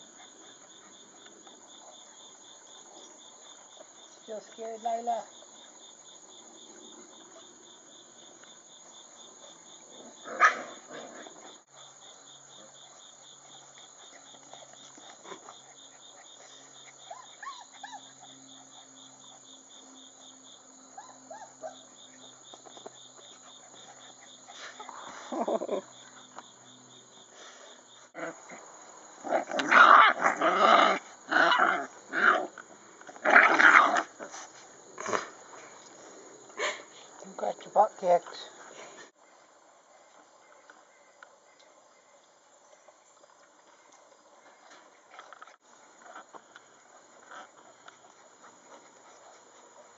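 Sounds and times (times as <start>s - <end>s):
insects chirping: 0.0s - 49.9s
puppies growling and yapping: 14.1s - 19.5s, 28.2s - 35.6s.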